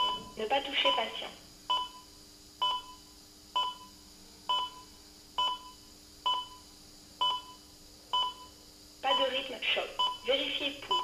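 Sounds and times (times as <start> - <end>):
heart monitor beeping: 0.0 - 9.3, 10.0 - 11.0
faint steady hum: 0.0 - 11.0.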